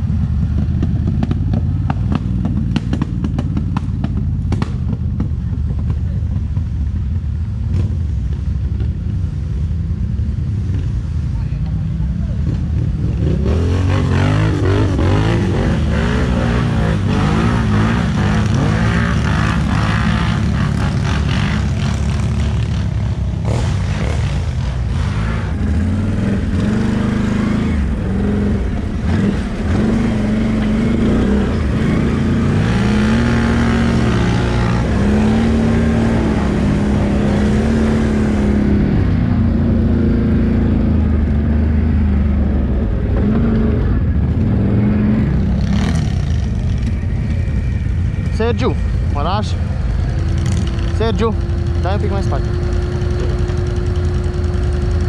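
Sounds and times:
atv engine revving: 0.0s - 6.8s, 12.2s - 55.0s.

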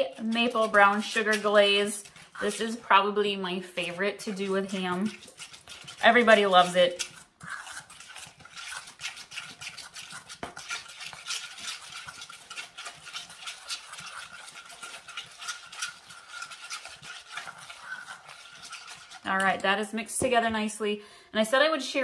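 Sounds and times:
metal utensil scraping a bowl: 0.0s - 19.8s.

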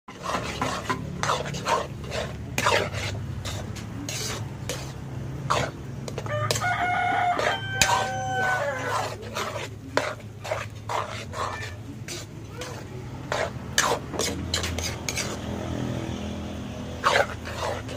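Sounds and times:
metal spatula scraping a wok: 0.1s - 17.9s
rooster crowing: 6.2s - 9.2s.

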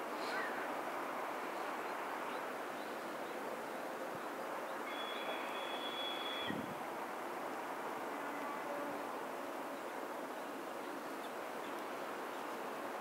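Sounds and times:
railway station background noise: 0.0s - 13.0s
high steady whistle: 4.8s - 6.7s.

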